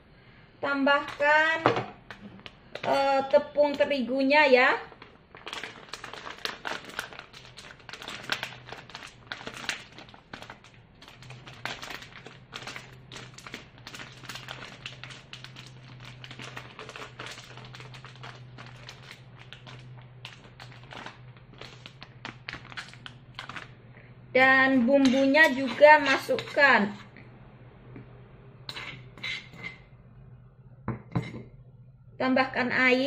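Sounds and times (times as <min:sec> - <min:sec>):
faint low hum: 0:00.0 - 0:33.0
plastic packet crinkling: 0:04.8 - 0:23.8.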